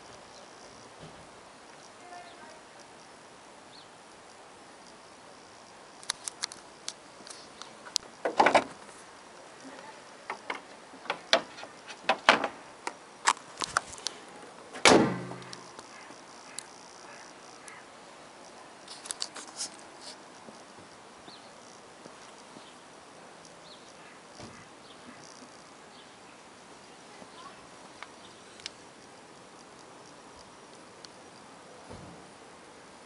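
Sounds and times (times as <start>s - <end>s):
sharp clicks and knocks: 6.0s - 8.8s, 10.3s - 13.9s.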